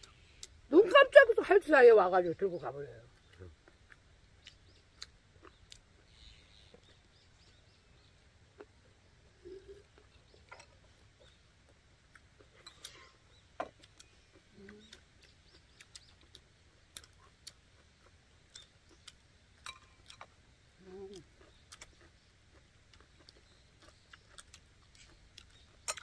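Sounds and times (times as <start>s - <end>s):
person humming: 14.5s - 14.9s.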